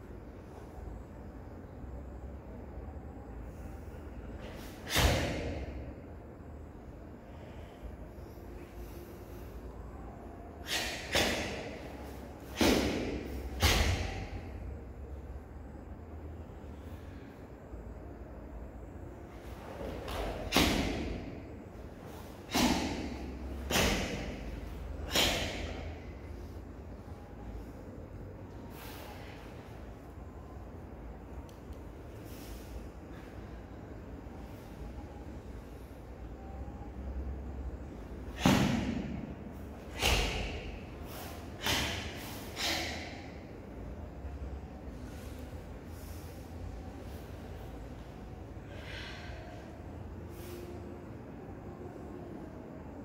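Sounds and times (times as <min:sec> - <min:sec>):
sharp forceful exhalations: 0:07.2 - 0:14.8, 0:19.4 - 0:26.6, 0:28.6 - 0:29.7, 0:39.8 - 0:43.7, 0:48.6 - 0:51.0.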